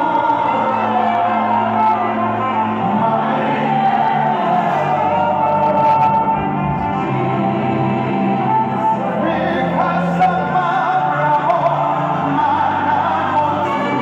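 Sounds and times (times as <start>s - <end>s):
held instrumental backing: 0.0s - 14.0s
man singing into a microphone: 8.9s - 14.0s.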